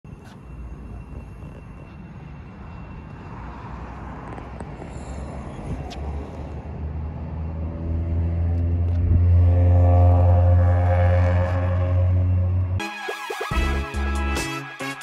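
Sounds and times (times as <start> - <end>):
background music: 12.8 - 15.0.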